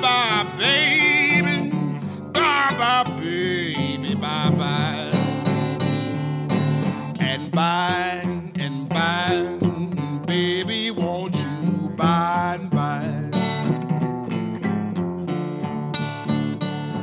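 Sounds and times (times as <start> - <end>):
man singing: 0.0 - 6.1, 6.9 - 13.8
acoustic guitar playing: 0.0 - 17.0.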